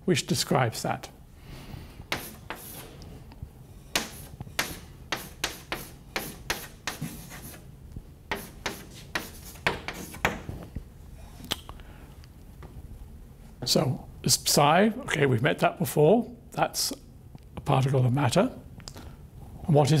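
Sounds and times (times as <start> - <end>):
chalk scratching on chalkboard: 2.1 - 3.0, 3.9 - 7.7, 8.3 - 10.5.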